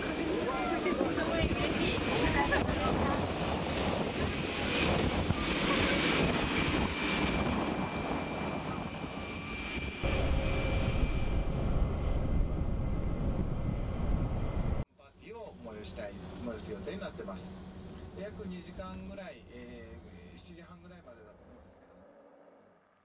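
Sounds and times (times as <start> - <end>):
jet engine rushing and whining: 0.0 - 14.9
wind buffeting microphone: 0.2 - 14.8.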